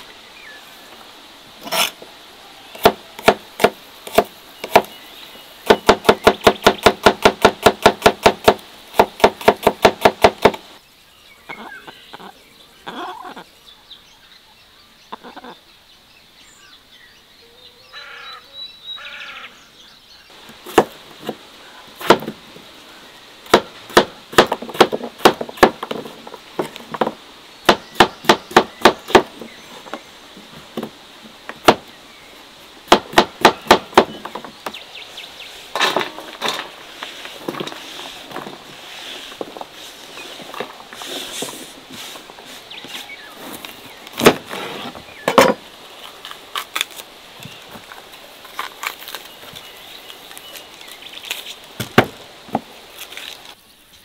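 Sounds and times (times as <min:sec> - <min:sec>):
sharp knocks: 0:02.8 - 0:04.9, 0:05.7 - 0:10.6, 0:22.0 - 0:22.4, 0:23.5 - 0:30.0, 0:31.6 - 0:31.9, 0:32.9 - 0:34.8.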